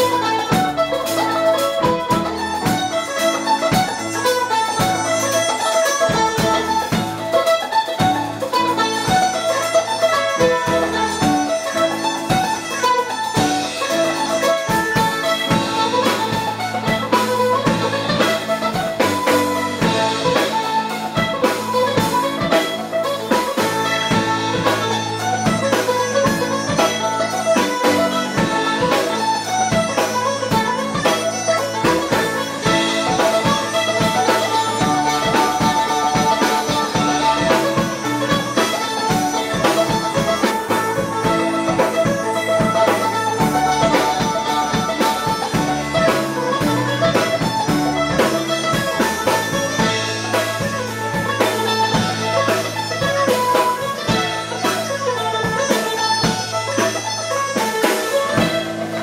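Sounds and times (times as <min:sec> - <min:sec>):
drum kit beat: 0:00.0 - 0:59.0
mandolin picking quick notes: 0:00.0 - 0:59.0.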